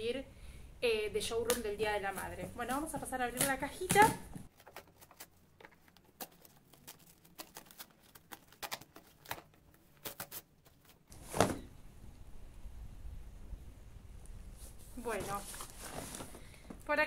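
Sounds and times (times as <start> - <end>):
cardboard tearing and crackling: 4.0 - 11.0.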